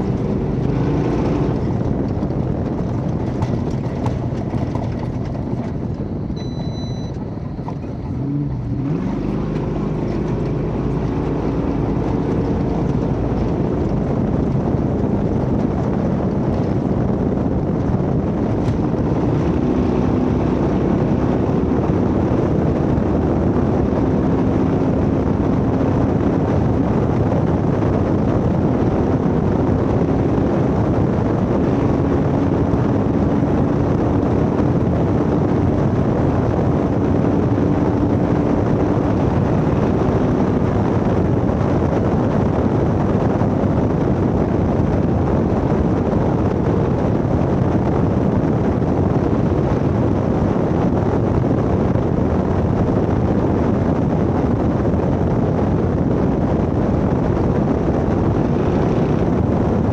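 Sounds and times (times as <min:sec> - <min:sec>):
drivetrain rumble: 0:00.0 - 0:59.9
truck engine drone: 0:00.0 - 0:59.9
wind: 0:00.0 - 0:59.9.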